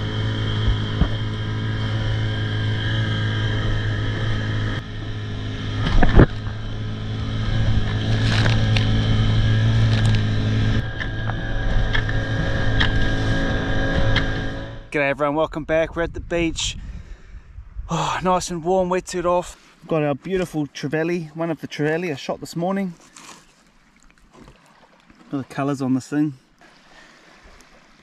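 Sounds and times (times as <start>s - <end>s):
hull slapping water: 0.0s - 11.1s, 20.3s - 28.0s
outboard motor running: 0.0s - 14.9s
wind on microphone: 5.7s - 14.8s, 15.6s - 19.3s.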